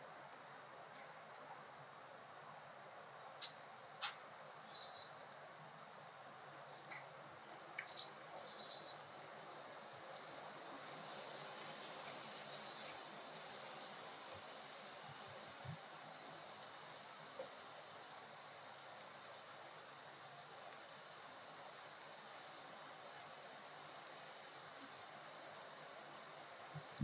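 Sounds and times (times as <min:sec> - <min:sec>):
outdoor hiss: 0:00.0 - 0:27.0
small birds chirping: 0:03.3 - 0:05.4, 0:06.0 - 0:13.1, 0:14.3 - 0:18.4, 0:25.5 - 0:27.0.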